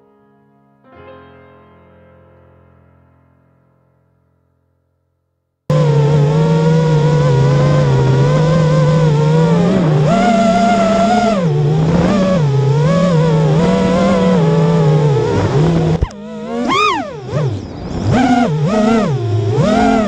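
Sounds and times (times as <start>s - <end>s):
drone motors whining: 5.7s - 20.0s
sharp click: 16.0s - 16.9s.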